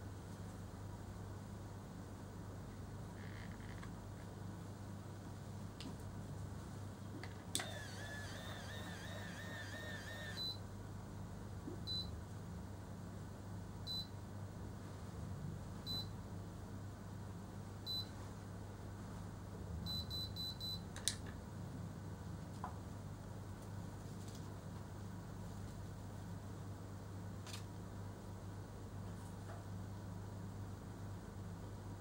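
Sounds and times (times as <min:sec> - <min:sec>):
hair curler whirring: 0:07.5 - 0:10.5
short beeps: 0:09.7 - 0:10.6.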